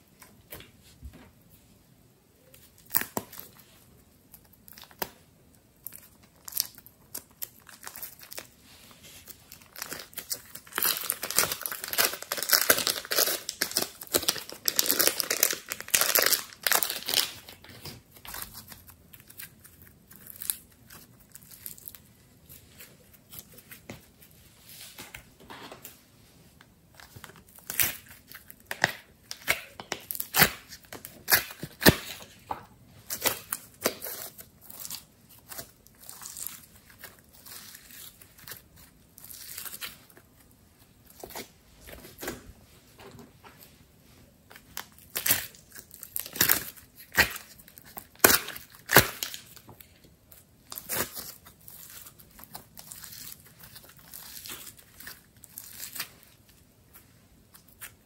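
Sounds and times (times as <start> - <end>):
slime crackling as kneaded: 2.5 - 24.2.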